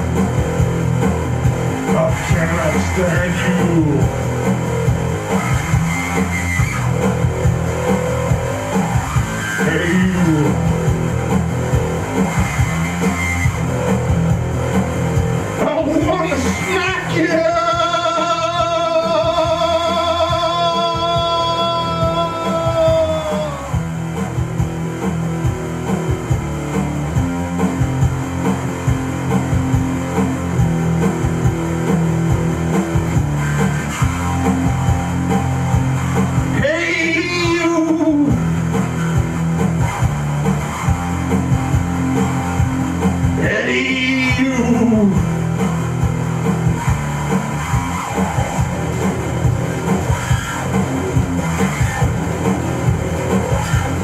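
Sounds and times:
drums: 0:00.0 - 0:54.0
electric bass guitar: 0:00.0 - 0:54.0
person singing: 0:09.6 - 0:10.7, 0:15.6 - 0:23.8, 0:36.4 - 0:38.5, 0:43.4 - 0:45.3.

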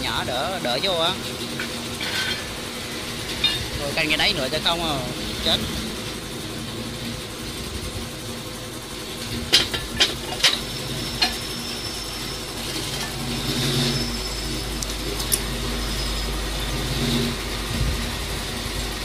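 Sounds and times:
steady machine hum: 0:00.0 - 0:19.0
metal chain links clanking: 0:01.6 - 0:02.5, 0:03.3 - 0:03.8.

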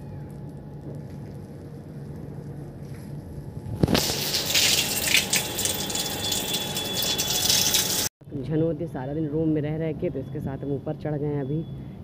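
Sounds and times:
low steady hum: 0:00.0 - 0:12.0
water gushing onto roof: 0:03.9 - 0:08.1.

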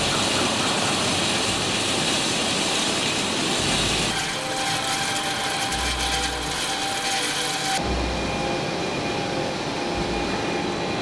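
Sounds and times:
industrial machinery noise: 0:00.0 - 0:11.0.

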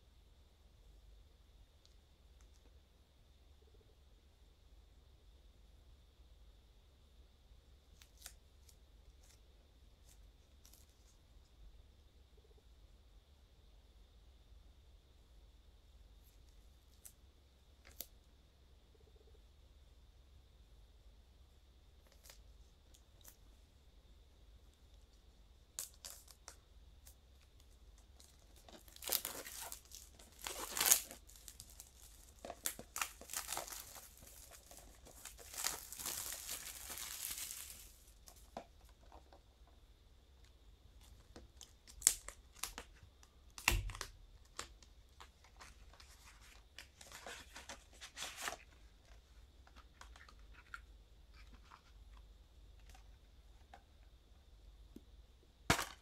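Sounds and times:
plastic wrap tearing and crinkling: 0:28.2 - 0:38.4, 0:41.8 - 0:42.9.

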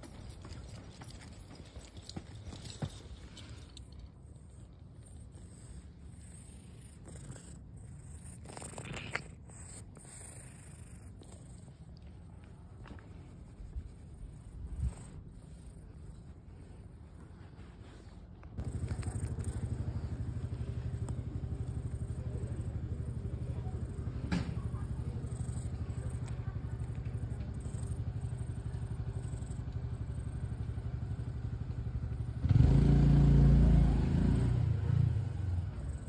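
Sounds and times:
cat purring: 0:04.2 - 0:31.2, 0:35.6 - 0:36.0.

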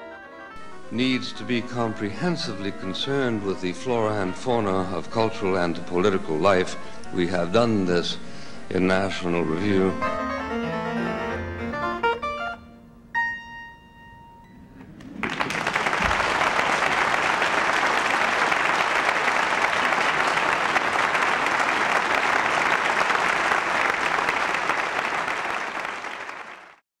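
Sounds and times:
harpsichord chord: 0:00.0 - 0:08.2, 0:09.1 - 0:14.8
audience applauding: 0:14.7 - 0:26.8.

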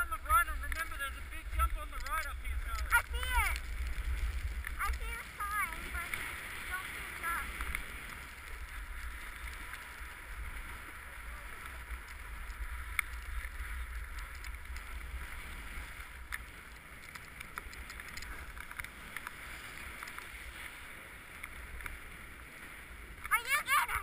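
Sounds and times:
wind rumbling on microphone: 0:00.0 - 0:24.0
snowboard scraping on snow: 0:00.1 - 0:17.1.

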